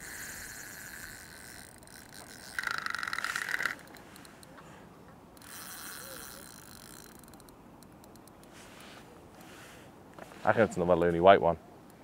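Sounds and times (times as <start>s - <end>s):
fishing reel clicking rapidly: 0.0s - 4.5s, 5.4s - 8.5s.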